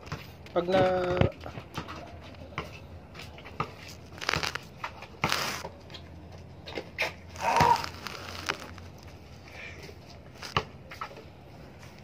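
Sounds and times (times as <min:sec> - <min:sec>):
basketball bouncing on asphalt: 0:00.0 - 0:06.0, 0:10.2 - 0:11.1.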